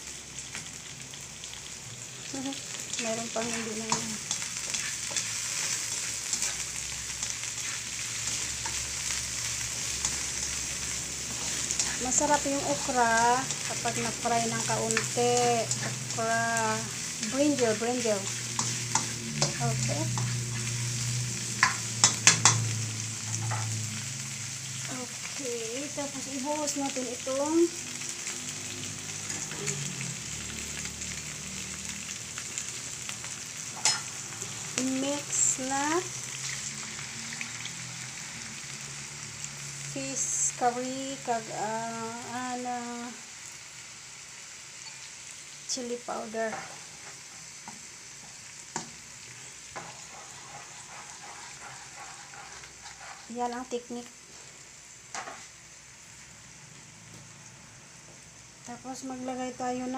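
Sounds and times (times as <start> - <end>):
food sizzling in hot oil: 0.0 - 59.9
spatula scraping a wok: 3.2 - 24.6, 33.6 - 38.4, 46.4 - 55.6.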